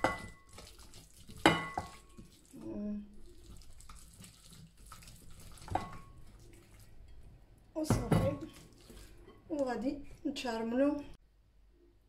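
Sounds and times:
hand squishing wet herb paste: 0.0 - 7.1, 8.4 - 10.2.

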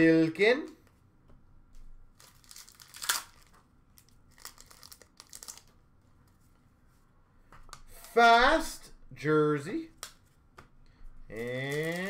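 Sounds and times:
card pack wrapper crinkling: 2.1 - 5.8, 11.3 - 12.0.

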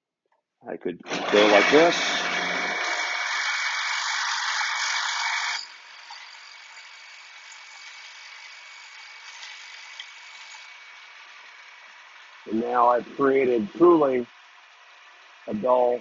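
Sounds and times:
grinding wheel grinding steel: 1.0 - 14.1.

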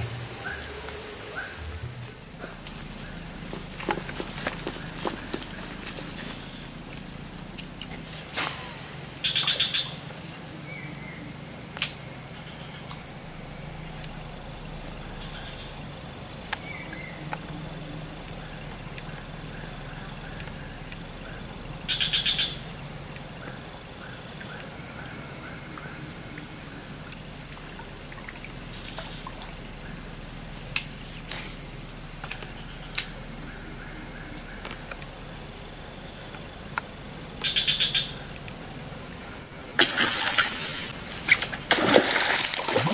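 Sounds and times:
bird trilled call: 0.0 - 3.3, 8.5 - 10.0, 18.4 - 22.8, 36.8 - 38.4
insects droning: 0.0 - 42.9.

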